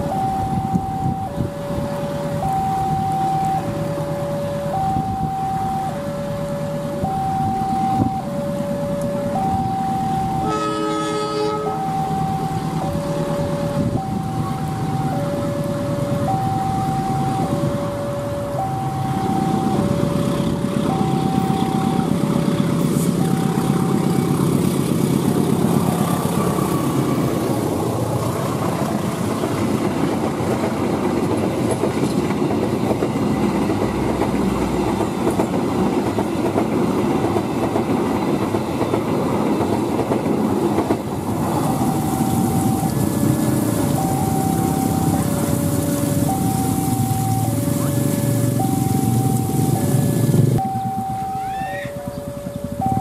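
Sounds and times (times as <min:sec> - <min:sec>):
two-note electronic warning signal: 0:00.0 - 0:22.4, 0:23.0 - 0:24.6, 0:41.6 - 0:53.0
diesel locomotive engine: 0:00.0 - 0:53.0
train wheels clattering over rails: 0:22.2 - 0:46.4.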